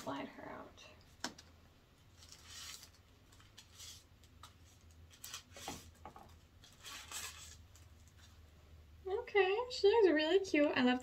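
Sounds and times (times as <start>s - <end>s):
plastic wrapping rustling: 2.0s - 8.4s.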